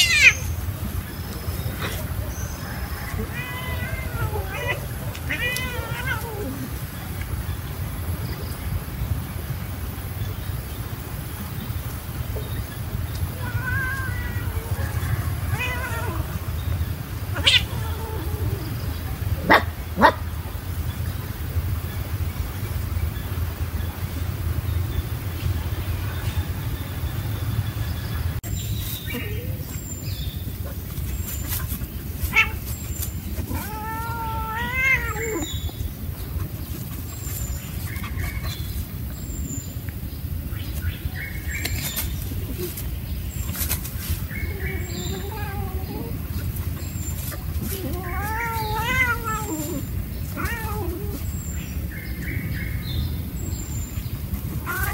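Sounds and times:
cat meowing and yowling: 0.0 - 0.5, 2.6 - 6.8, 13.3 - 16.4, 17.3 - 18.8, 32.3 - 32.7, 33.4 - 35.6, 44.4 - 46.3, 47.2 - 51.4, 54.6 - 54.9.

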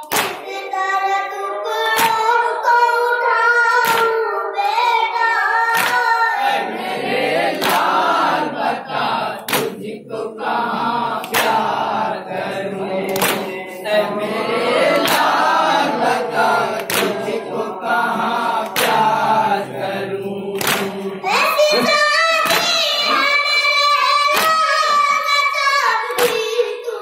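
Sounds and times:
men chanting in unison: 6.4 - 22.0
hands striking chests: 9.5 - 9.8, 13.1 - 13.6, 16.8 - 17.3, 20.6 - 21.0.

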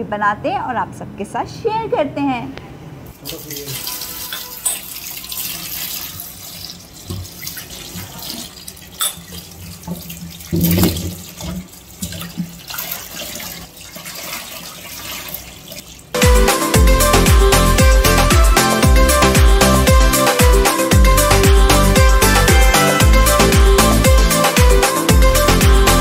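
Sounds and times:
tap water splashing on lemons: 3.2 - 16.1.

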